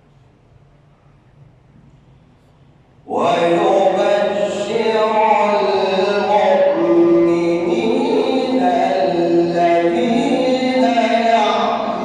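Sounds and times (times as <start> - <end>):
man chanting melodically: 3.1 - 12.0.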